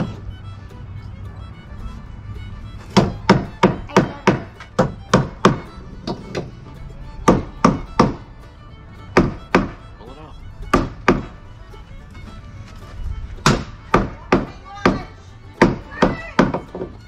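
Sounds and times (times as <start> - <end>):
hammer driving nails into wood: 3.0 - 6.5, 7.3 - 8.2, 9.2 - 9.8, 10.7 - 11.3, 13.4 - 15.0, 15.6 - 16.9.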